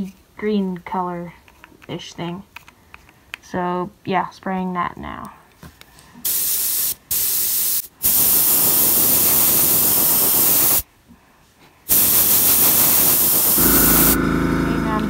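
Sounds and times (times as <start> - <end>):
airbrush spraying hiss: 6.2 - 10.8, 11.9 - 14.2.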